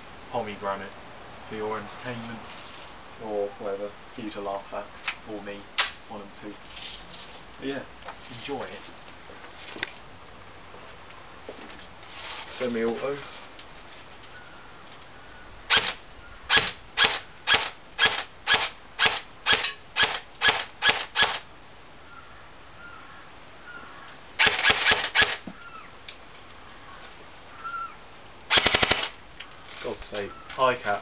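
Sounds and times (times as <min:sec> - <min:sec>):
airsoft rifle shots: 0:15.7 - 0:21.4, 0:24.4 - 0:25.4, 0:28.5 - 0:29.2.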